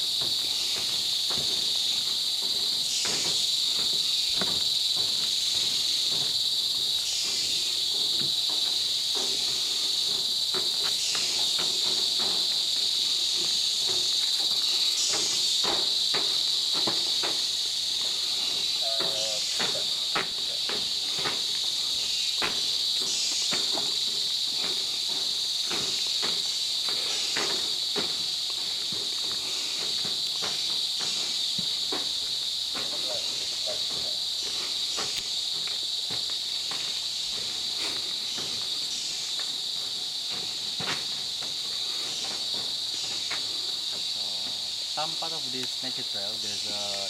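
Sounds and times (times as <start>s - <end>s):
footsteps on boardwalk: 0.0s - 47.0s
high-pitched insect drone: 0.0s - 47.0s.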